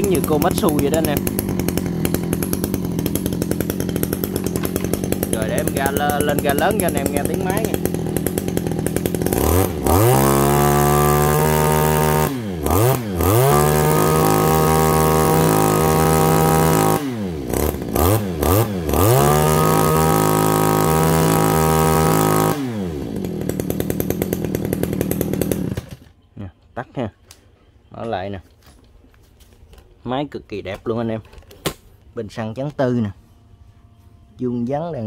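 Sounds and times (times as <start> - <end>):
brush cutter engine revving: 0.0 - 26.2.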